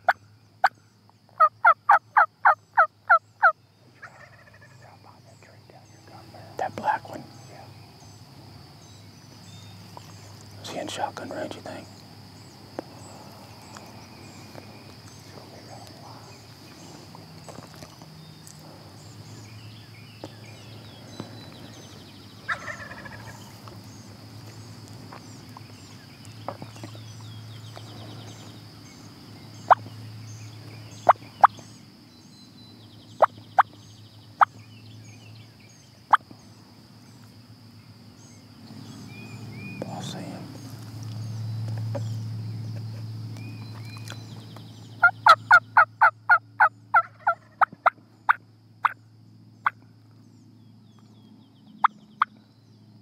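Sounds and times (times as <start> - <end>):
turkey clucking: 1.4 - 4.8, 22.5 - 23.5, 45.0 - 49.0
turkey gobble: 1.4 - 4.8, 22.5 - 23.5, 45.0 - 49.0.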